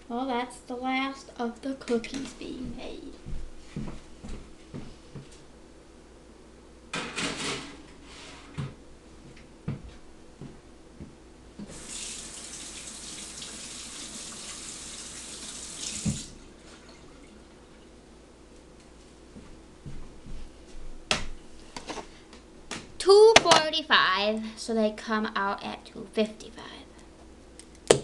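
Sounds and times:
kitchen tap running: 11.7 - 16.4.

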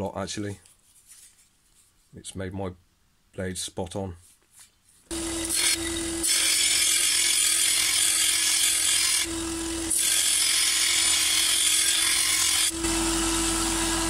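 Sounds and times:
sander motor hum: 5.1 - 7.0, 7.7 - 14.0.

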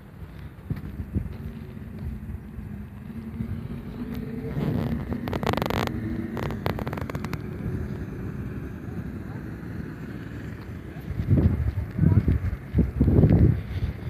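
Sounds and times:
faint engine hum: 0.0 - 14.0
steady low rumble: 0.0 - 14.0
sharp clicks: 4.2 - 7.6.

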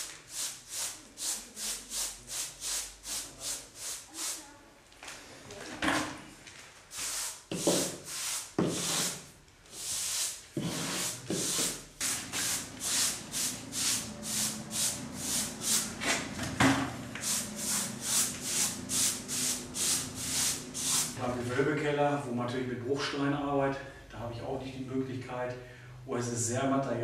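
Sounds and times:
bristle brush scratching plaster: 0.0 - 4.5, 6.9 - 16.0, 17.2 - 21.2.

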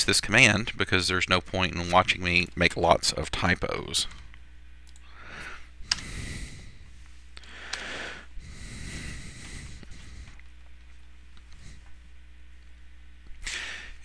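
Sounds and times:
man breathing: 5.0 - 10.5, 11.5 - 12.0, 13.4 - 14.0.

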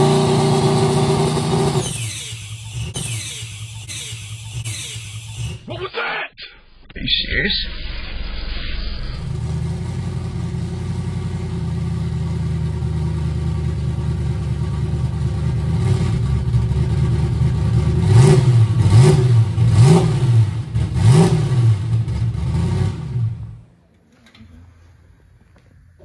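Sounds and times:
race car engine revving: 0.0 - 5.7, 7.8 - 12.8, 15.0 - 23.6.

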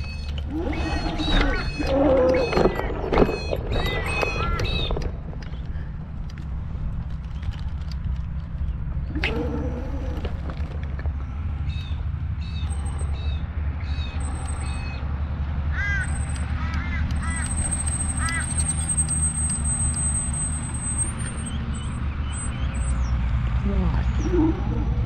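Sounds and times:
birds calling: 0.0 - 6.4, 8.4 - 19.3
wheelchair rolling rumble: 0.0 - 11.4.

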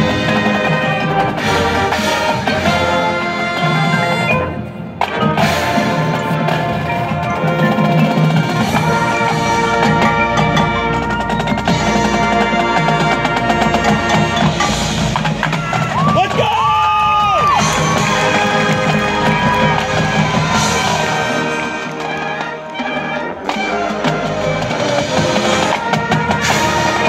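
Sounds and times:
drums and mallet percussion: 0.0 - 27.0
marching band playing: 0.0 - 27.0.

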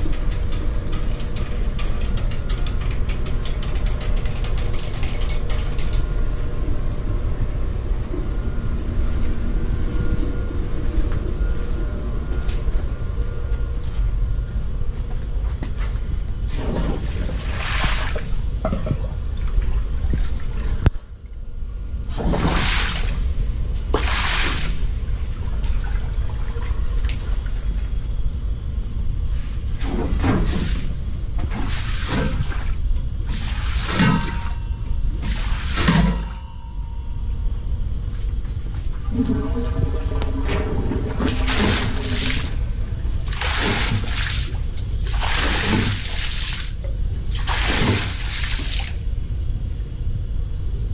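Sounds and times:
steady low rumble: 5.7 - 22.2, 30.8 - 50.9
water running: 39.0 - 48.4.

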